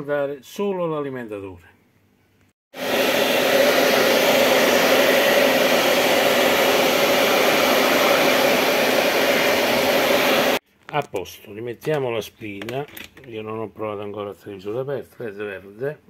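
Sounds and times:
hair dryer blowing: 2.7 - 10.6.

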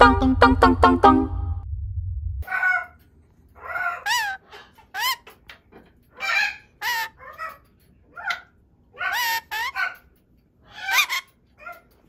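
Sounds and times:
parrot squawks and whistles: 10.7 - 11.4.

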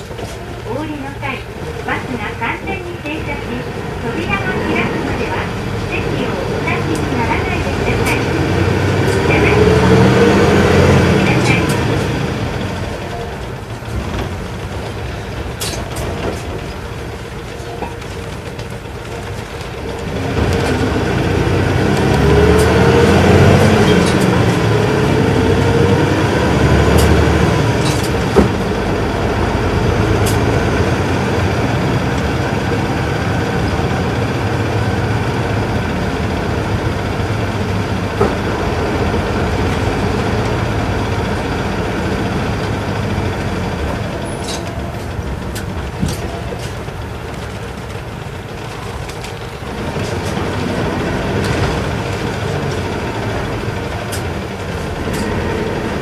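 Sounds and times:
bus diesel engine with whine: 0.0 - 56.0.

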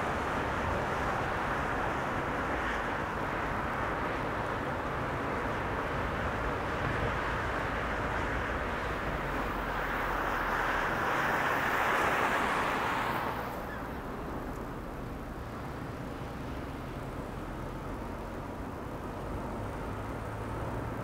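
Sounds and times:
car tyre and wind noise: 0.0 - 21.0.

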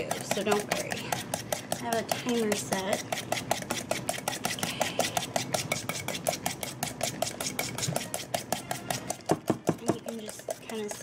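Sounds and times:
whisk clicking in metal bowl: 0.0 - 11.0.

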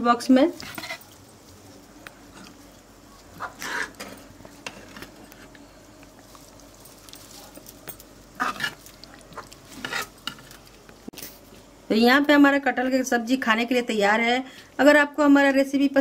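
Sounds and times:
spoon scraping cookware: 8.4 - 8.8, 9.7 - 10.5.

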